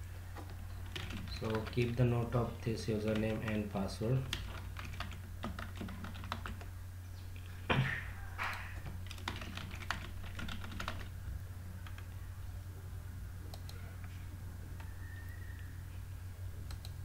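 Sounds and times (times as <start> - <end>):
steady low hum: 0.0 - 17.0
keyboard keys clicking: 0.8 - 1.9, 4.3 - 6.7, 9.0 - 11.1.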